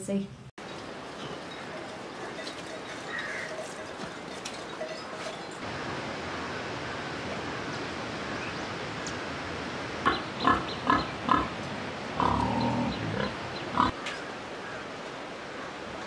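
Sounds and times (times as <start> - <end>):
steady background hiss: 0.0 - 16.0
pigs grunting: 10.1 - 11.6, 12.2 - 14.0.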